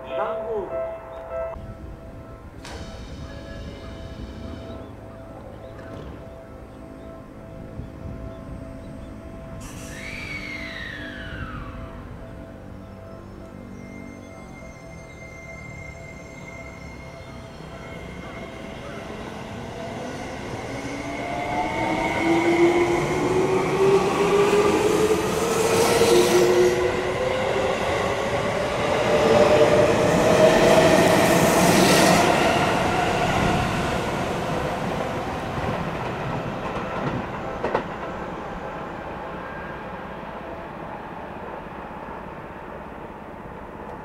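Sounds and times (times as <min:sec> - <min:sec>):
train wheels on rails: 0:02.6 - 0:04.9, 0:17.6 - 0:39.2.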